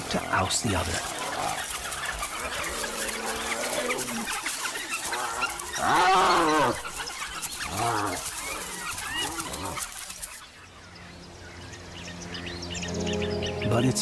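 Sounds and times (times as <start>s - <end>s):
animal calls rising and falling: 0.9s - 10.4s.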